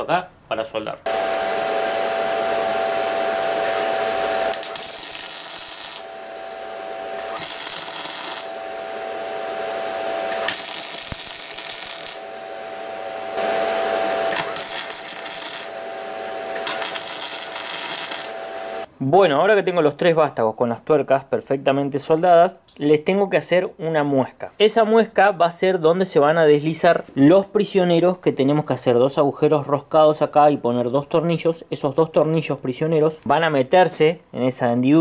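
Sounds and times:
steady whine: 1.1s - 18.9s
welding arc crackling: 3.6s - 18.9s.

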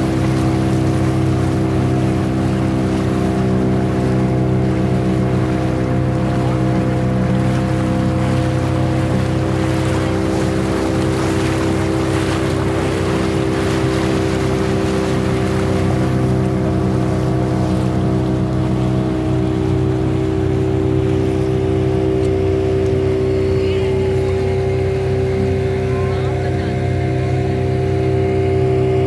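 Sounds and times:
motor boat engine droning: 0.0s - 29.0s.

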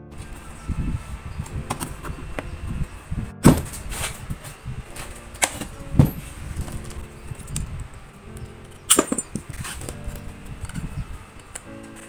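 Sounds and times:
scraping: 0.0s - 12.0s
metal housing knocks: 3.4s - 4.0s, 5.0s - 7.0s, 8.9s - 9.7s.

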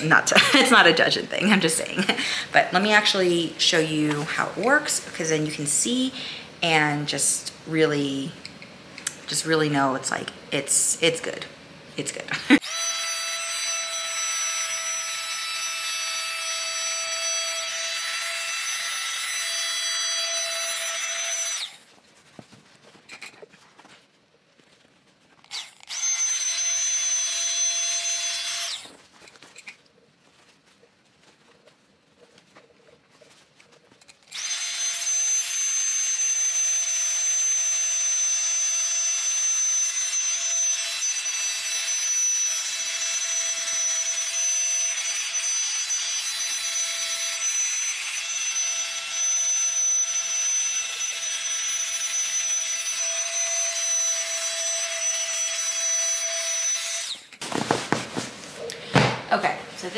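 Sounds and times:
mini air pump whining: 12.5s - 21.9s, 25.4s - 29.7s, 34.2s - 59.2s.

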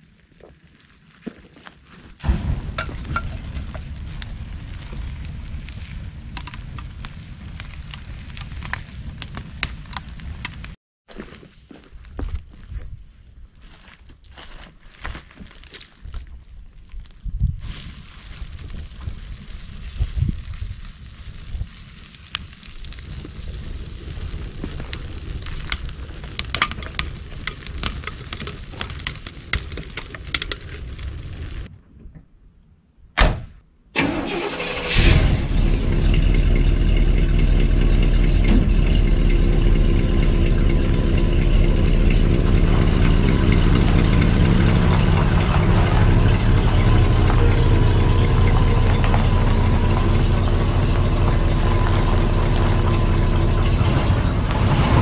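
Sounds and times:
open fire crackling: 0.0s - 31.7s, 34.0s - 55.0s
low steady rumble: 2.2s - 10.8s, 34.9s - 55.0s.

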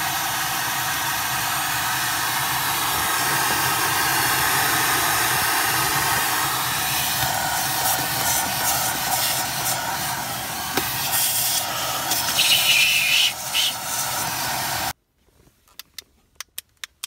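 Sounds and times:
vacuum cleaner running: 0.0s - 15.0s
high whistle: 8.8s - 14.0s.

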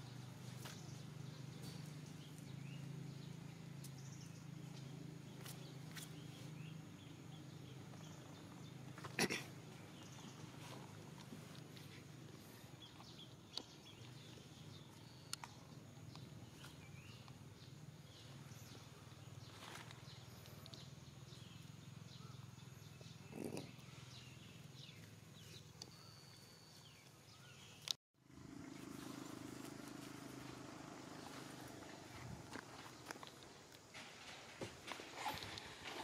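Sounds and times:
faint bird chirps: 0.8s - 27.9s.

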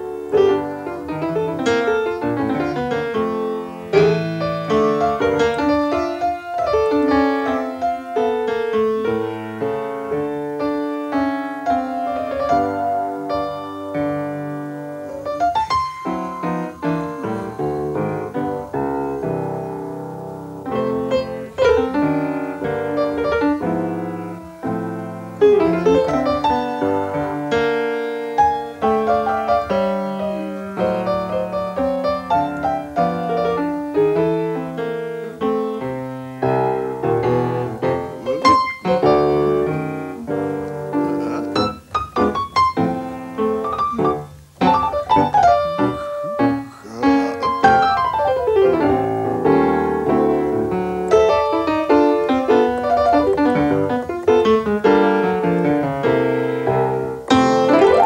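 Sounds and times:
solo jazz piano: 0.0s - 58.0s.

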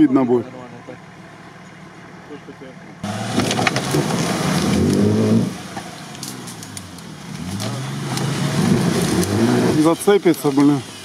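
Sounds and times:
suv engine revving: 0.0s - 11.0s
brush cracking against vehicle: 3.0s - 10.8s.

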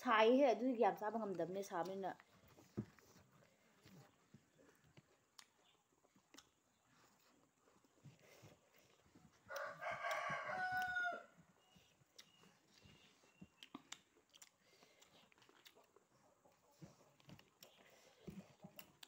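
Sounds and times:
rooster crowing: 9.5s - 11.4s
clicks of eating by hand: 11.7s - 19.0s.

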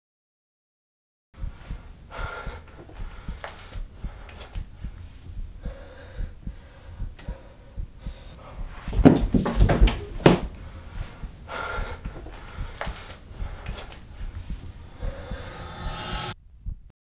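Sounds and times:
person breathing shakily and gasping: 1.4s - 8.8s, 10.6s - 16.1s
fast low thumping: 1.4s - 16.9s.

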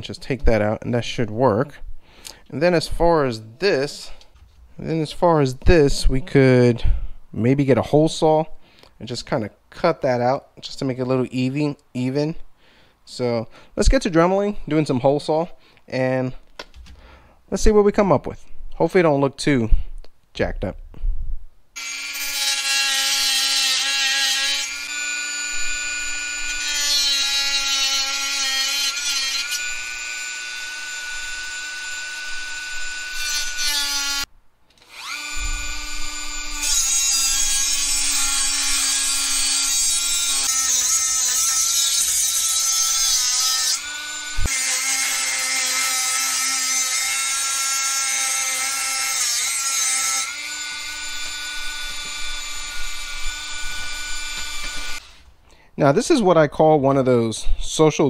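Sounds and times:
rotary tool cutting metal: 21.8s - 55.1s.

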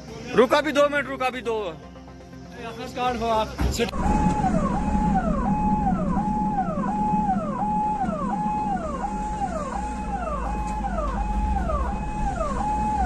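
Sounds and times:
car engine rumble and road noise: 3.8s - 13.0s
ambulance siren: 3.9s - 13.0s.

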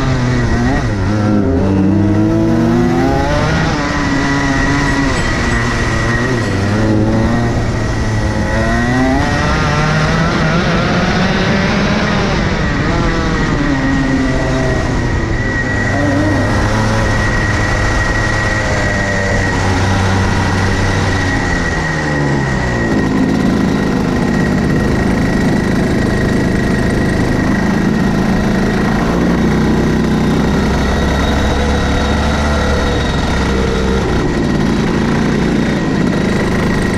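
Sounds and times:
go-kart engine revving: 0.0s - 36.9s.

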